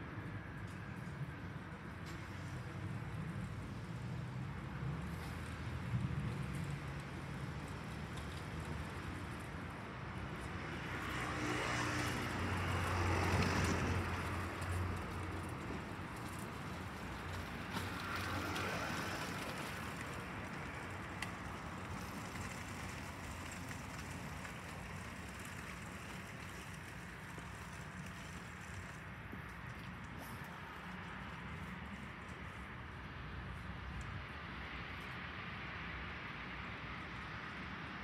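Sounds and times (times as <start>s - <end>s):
vehicle passing: 10.8s - 29.0s.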